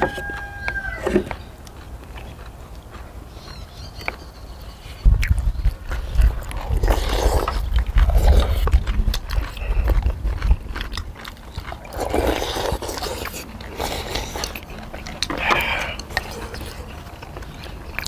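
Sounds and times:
people slurping and chewing noodles: 0:00.0 - 0:18.0.

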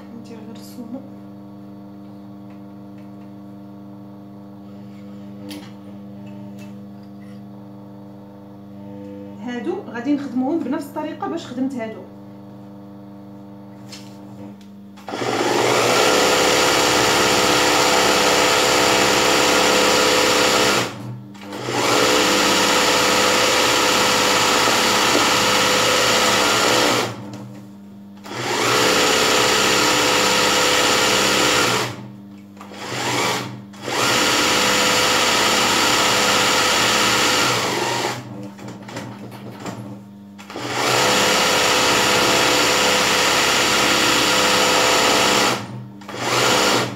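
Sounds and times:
sewing machine stitching: 0:15.0 - 0:27.3, 0:28.2 - 0:46.9.

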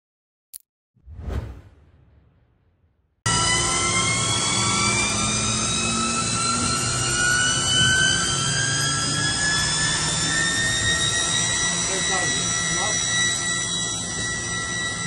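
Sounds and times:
machine spindle whine rising: 0:03.3 - 0:15.0.

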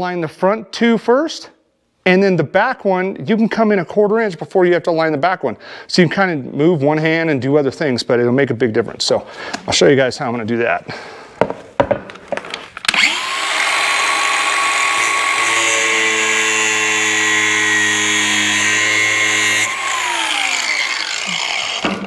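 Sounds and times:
angle grinder running: 0:12.9 - 0:22.0.

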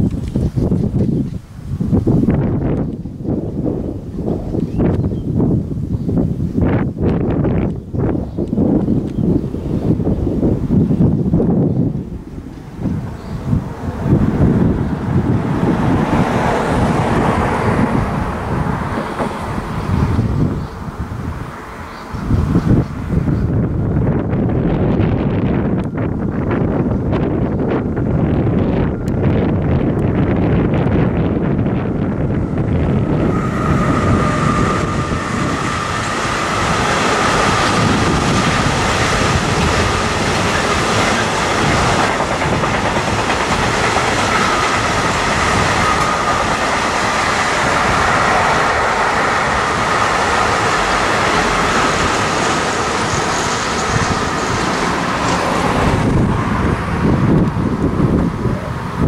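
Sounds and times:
freight train rumble: 0:00.0 - 0:59.0
train wheels clattering: 0:32.2 - 0:57.5.

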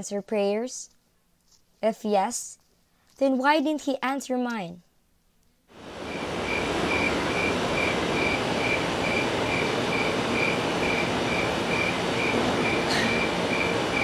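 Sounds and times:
steady rushing noise: 0:05.8 - 0:14.0
cricket chirping: 0:06.0 - 0:14.0.

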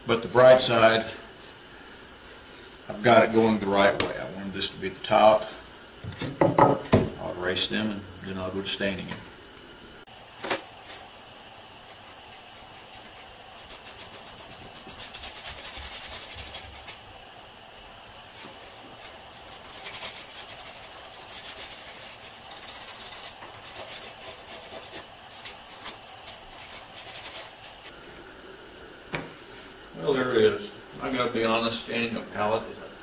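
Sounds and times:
scrubbing strokes on rough wood: 0:11.8 - 0:17.0, 0:18.3 - 0:28.0.

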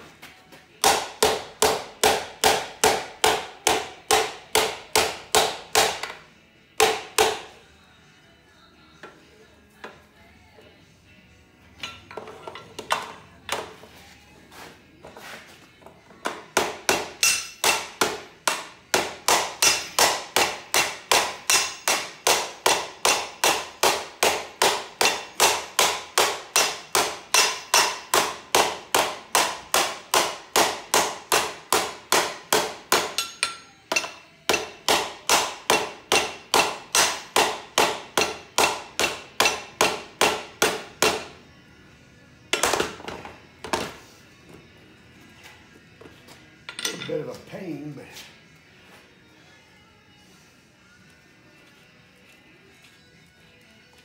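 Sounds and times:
hammer ringing on sheet metal: 0:17.0 - 0:17.9, 0:18.5 - 0:41.2.

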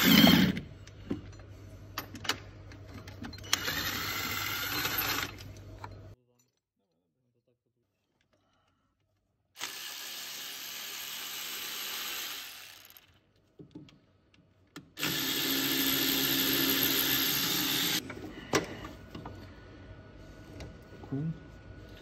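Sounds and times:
power ratchet running: 0:03.5 - 0:05.4, 0:09.6 - 0:13.0, 0:15.0 - 0:18.0.

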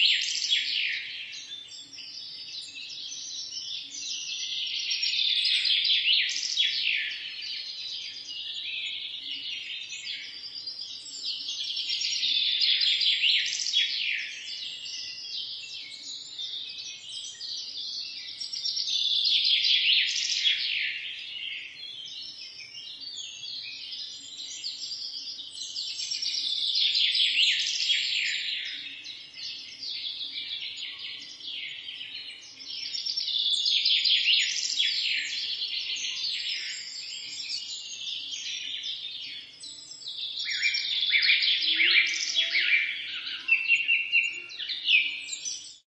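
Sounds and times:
small birds chirping: 0:00.0 - 0:45.9.

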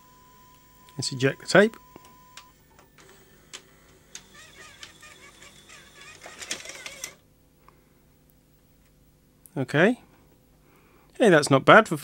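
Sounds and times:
motor and gear whirring: 0:01.8 - 0:07.2.

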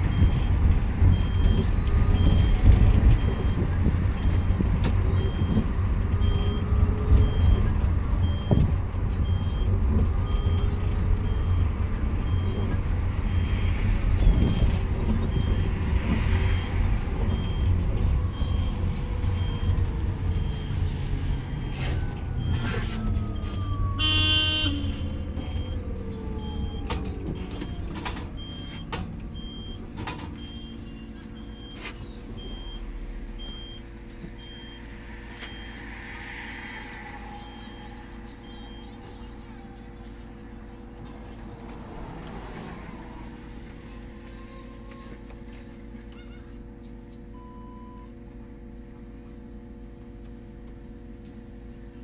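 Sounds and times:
bus rolling rumble: 0:00.0 - 0:52.0
high beep: 0:34.4 - 0:39.4.

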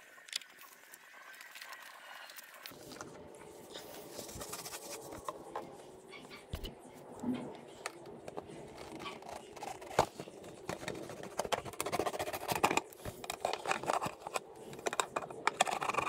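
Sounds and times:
hand tools clicking and scraping: 0:07.8 - 0:16.0.

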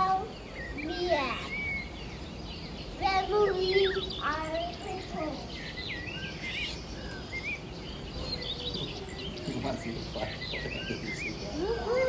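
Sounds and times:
children calling out: 0:03.0 - 0:05.6, 0:11.5 - 0:12.0.

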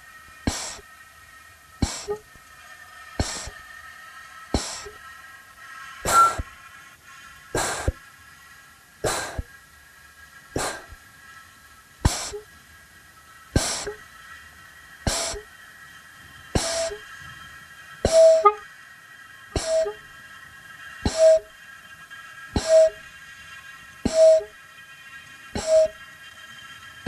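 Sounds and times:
steady high drone: 0:00.3 - 0:02.5, 0:03.1 - 0:03.7, 0:04.5 - 0:05.0, 0:06.0 - 0:06.5, 0:07.5 - 0:08.0, 0:10.5 - 0:11.0, 0:12.0 - 0:12.5, 0:13.5 - 0:14.2, 0:15.0 - 0:15.5, 0:16.5 - 0:17.1, 0:18.0 - 0:18.7, 0:19.5 - 0:20.1, 0:21.0 - 0:21.6, 0:22.5 - 0:23.2, 0:24.0 - 0:24.6, 0:25.5 - 0:26.0
electronic hissing hits: 0:00.4 - 0:00.9, 0:01.8 - 0:02.4, 0:03.2 - 0:03.7, 0:04.5 - 0:05.0, 0:06.0 - 0:06.6, 0:07.5 - 0:08.0, 0:09.0 - 0:09.5, 0:10.5 - 0:11.0, 0:12.0 - 0:12.5, 0:13.5 - 0:14.1, 0:15.0 - 0:15.5, 0:16.5 - 0:17.1, 0:18.0 - 0:18.6, 0:19.5 - 0:20.1, 0:21.0 - 0:21.6, 0:22.5 - 0:23.1, 0:24.0 - 0:24.6, 0:25.5 - 0:26.0.

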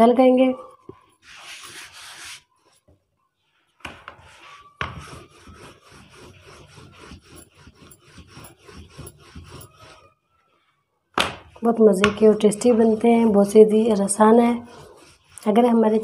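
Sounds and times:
rolling pin rolling dough: 0:03.8 - 0:10.2, 0:11.2 - 0:16.0.

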